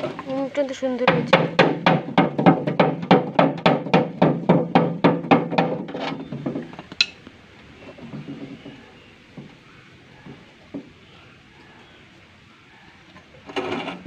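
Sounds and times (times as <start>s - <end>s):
hammer striking sheet tin: 1.0s - 6.0s.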